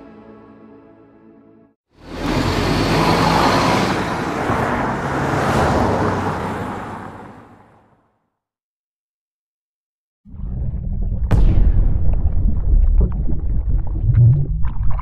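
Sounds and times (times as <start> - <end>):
car driving past: 2.0 - 7.9.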